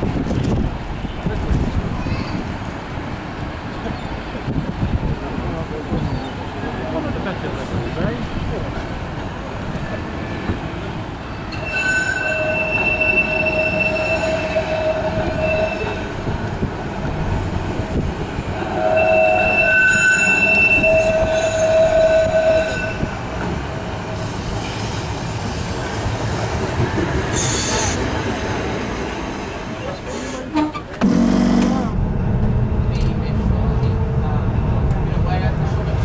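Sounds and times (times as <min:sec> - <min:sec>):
tram passing rush: 0:00.0 - 0:36.0
tram running gear rumble: 0:00.0 - 0:36.0
tram wheels squealing on rails: 0:09.8 - 0:16.6, 0:17.8 - 0:26.0, 0:27.0 - 0:28.4, 0:29.7 - 0:31.3.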